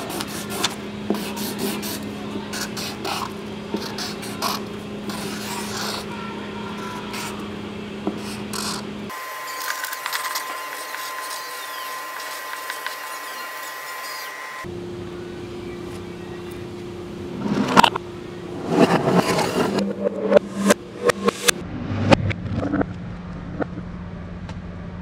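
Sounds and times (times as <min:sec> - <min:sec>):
marker pen scratching on paper: 0:00.0 - 0:06.1, 0:08.1 - 0:08.8
thin high tone: 0:09.1 - 0:18.6
low steady hum: 0:14.6 - 0:25.0.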